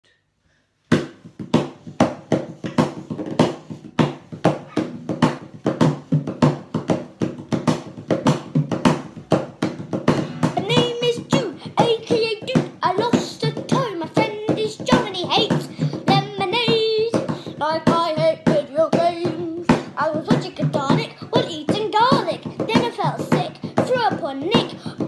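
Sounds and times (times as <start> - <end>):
person singing: 10.1 - 25.0.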